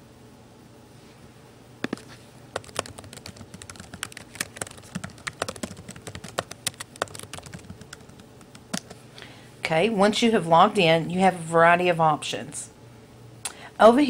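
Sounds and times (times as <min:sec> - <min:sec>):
keyboard typing clicks: 0:02.6 - 0:09.0.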